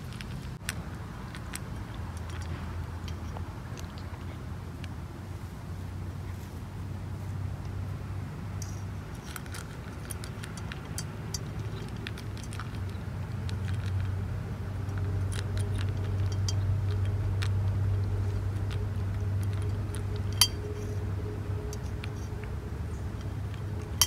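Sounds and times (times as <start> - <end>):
cat chewing: 0.0 - 5.6, 8.8 - 24.0
low hum: 0.0 - 24.0
clinks against metal bowl: 19.6 - 20.9.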